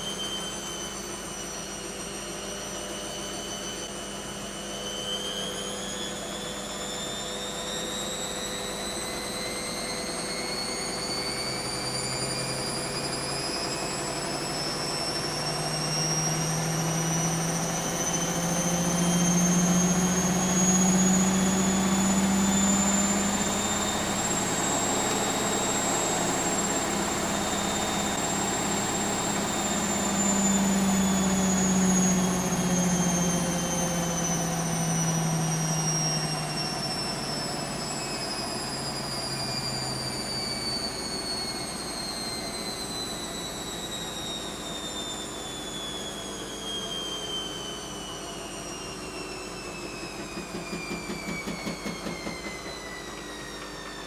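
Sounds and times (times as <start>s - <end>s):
washing machine motor whine: 0.0s - 54.0s
low hum: 12.4s - 44.6s.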